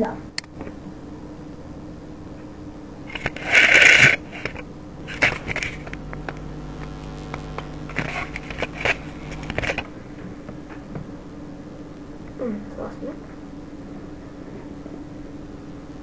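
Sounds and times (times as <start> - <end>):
low steady hum: 0.0 - 16.0
loud burst of noise: 3.0 - 10.2
rustling and crackling: 3.1 - 11.2
sharp clicks: 5.2 - 9.9.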